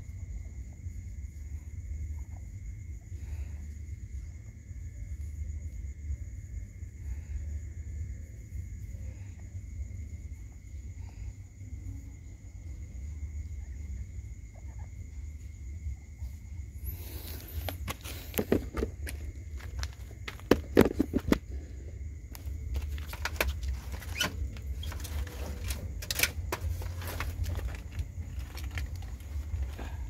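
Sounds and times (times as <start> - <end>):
steady low rumble: 12.7 - 30.0
rustling at wire cage: 22.4 - 30.0.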